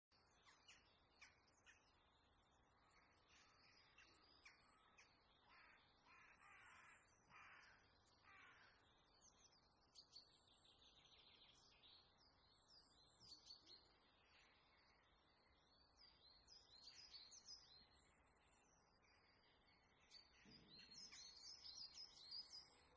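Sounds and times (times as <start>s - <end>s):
small birds chirping and trilling: 0.1s - 22.9s
harsh caw-like bird calls: 4.8s - 8.9s.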